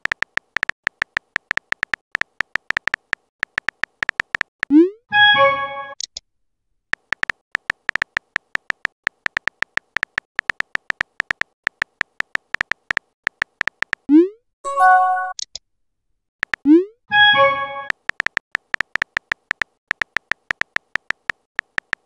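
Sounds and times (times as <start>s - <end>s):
phone keyboard taps: 0.0s - 4.5s, 7.0s - 14.1s, 16.4s - 16.6s, 17.9s - 22.0s
short synthetic chime: 14.7s - 15.4s.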